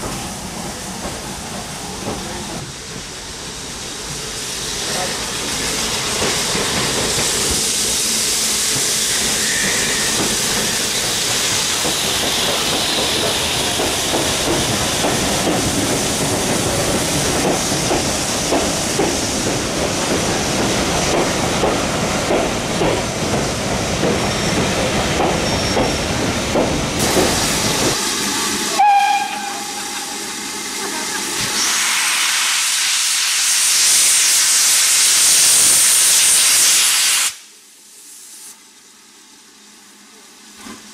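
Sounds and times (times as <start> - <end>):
steam train rumbling past: 0.0 - 38.4
hiss of escaping steam: 2.6 - 21.5, 27.0 - 38.6
steam locomotive whistle: 28.6 - 30.3.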